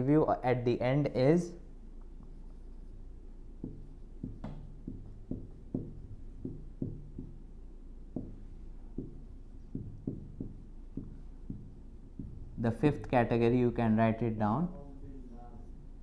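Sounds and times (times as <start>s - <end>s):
marker writing on whiteboard: 2.0s - 13.8s.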